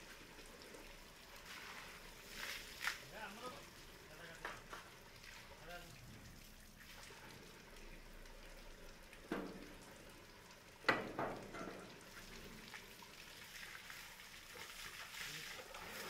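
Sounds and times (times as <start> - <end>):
hose water spraying and splashing: 0.0 - 9.8, 10.4 - 16.0
sharp slaps or splashes: 2.4 - 3.1.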